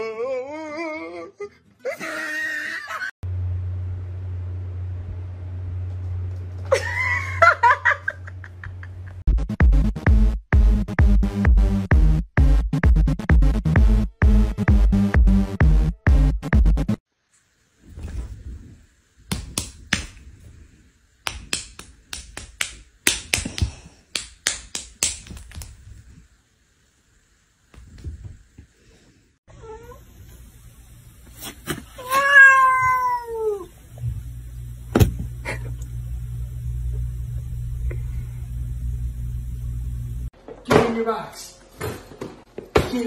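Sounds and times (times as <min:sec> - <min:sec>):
low hum: 0:03.2 - 0:07.3, 0:33.7 - 0:40.3
cat meowing: 0:32.0 - 0:33.7.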